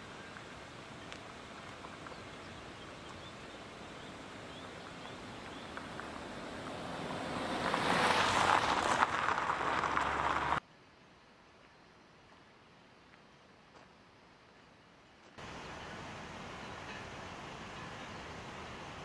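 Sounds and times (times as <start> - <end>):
faint steady hiss: 0.0 - 19.0
rushing crackly noise: 4.6 - 10.6.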